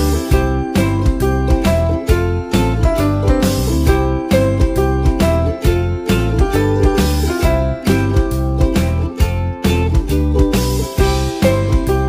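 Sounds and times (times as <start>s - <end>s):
music with beat and bass: 0.0s - 12.0s.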